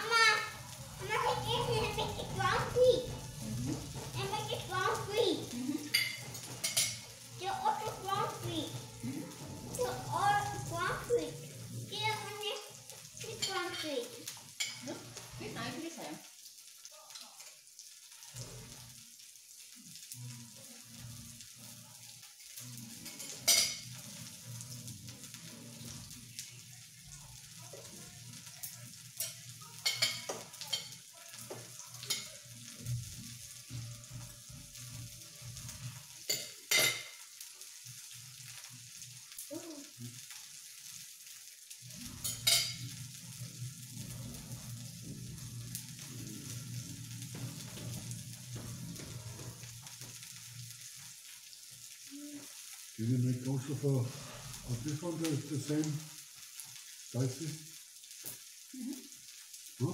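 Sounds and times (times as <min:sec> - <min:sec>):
food sizzling on a grill: 0:00.0 - 0:59.9
cutlery clinking on plates: 0:05.8 - 0:07.1, 0:23.0 - 0:24.0, 0:29.2 - 0:32.4, 0:36.3 - 0:37.2, 0:42.1 - 0:43.0.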